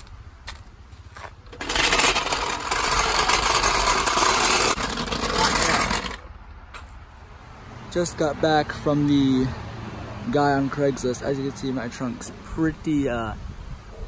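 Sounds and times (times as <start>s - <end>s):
floor jack wheels rolling on asphalt: 0.0s - 13.2s.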